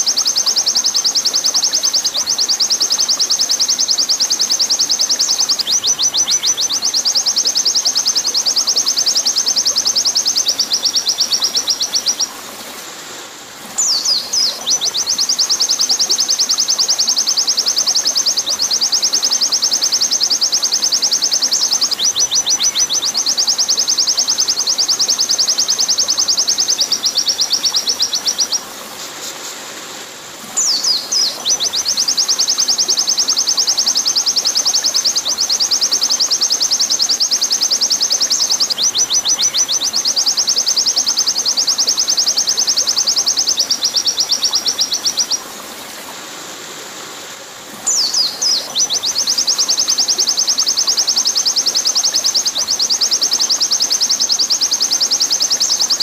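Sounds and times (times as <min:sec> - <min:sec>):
bird singing rapid high trills: 0:00.0 - 0:12.3, 0:13.8 - 0:28.6, 0:30.6 - 0:45.4, 0:47.9 - 0:56.0
flowing water: 0:00.0 - 0:56.0.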